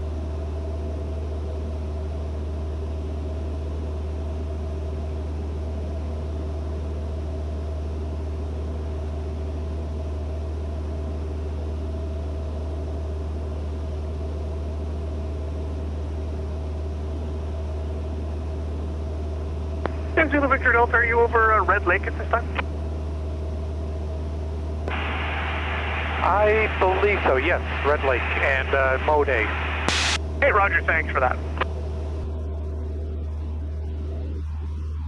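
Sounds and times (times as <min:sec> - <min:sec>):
aircraft engine and propeller drone: 0:00.0 - 0:35.0.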